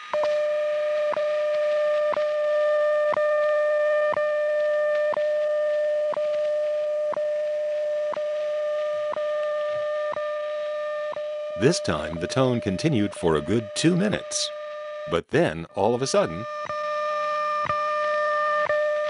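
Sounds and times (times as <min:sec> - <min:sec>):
steady radio tone: 0:11.6 - 0:16.9.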